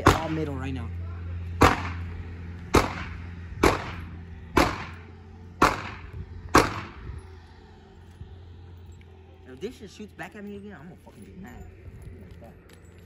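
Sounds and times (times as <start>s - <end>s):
pistol shots with echo: 0.0s - 0.4s, 1.6s - 2.1s, 2.7s - 5.0s, 5.6s - 7.0s.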